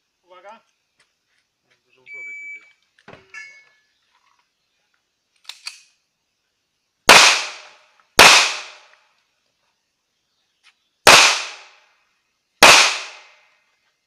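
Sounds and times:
pistol shots: 7.1s - 8.9s, 11.1s - 11.8s, 12.6s - 13.3s.

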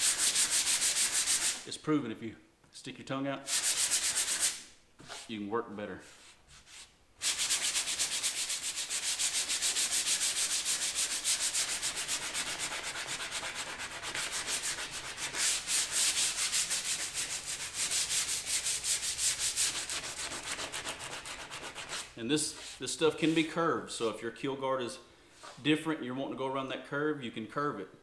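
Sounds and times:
sandpaper rubbing on plastic: 0.0s - 1.7s, 3.5s - 5.3s, 6.2s - 23.5s.

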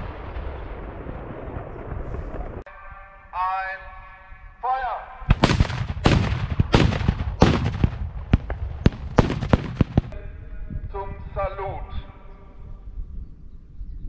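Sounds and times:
saluting guns firing loud bangs: 5.3s - 10.2s.

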